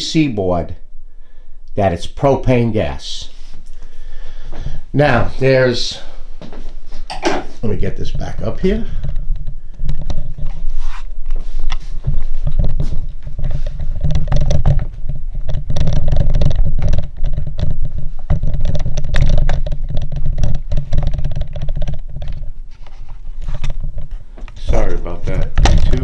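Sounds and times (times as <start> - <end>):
rubbing rumble of handling: 4.3 - 26.0
clicks and knocks: 12.4 - 22.5.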